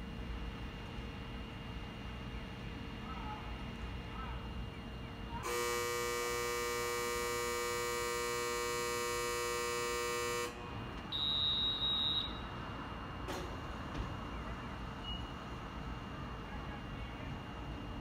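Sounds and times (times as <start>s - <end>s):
electric departure buzzer: 5.4s - 10.6s
short high beep: 11.1s - 12.4s.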